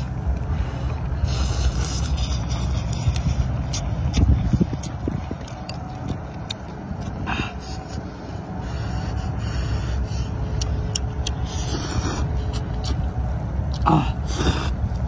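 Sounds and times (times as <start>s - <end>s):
slurping and chewing noodles: 0.0s - 15.0s
steady low rumble: 0.0s - 15.0s
wet mouth clicks: 1.7s - 7.2s, 10.6s - 13.1s.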